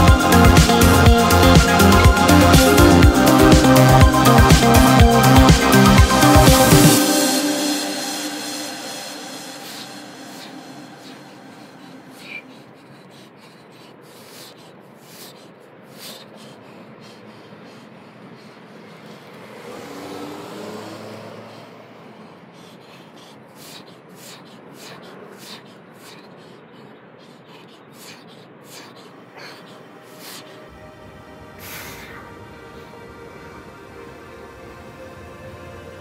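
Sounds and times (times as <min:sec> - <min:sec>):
vehicle passing: 0:00.0 - 0:12.9, 0:16.4 - 0:26.6, 0:28.1 - 0:36.0
outdoor background noise: 0:05.0 - 0:36.0.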